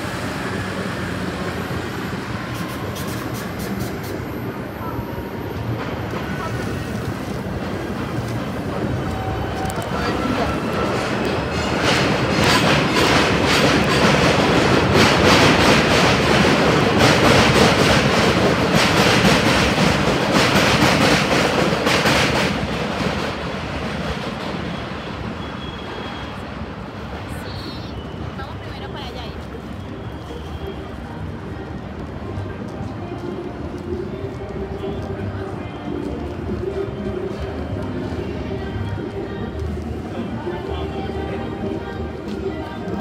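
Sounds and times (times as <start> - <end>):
train wheels clacking over rail joints: 5.7 - 24.8.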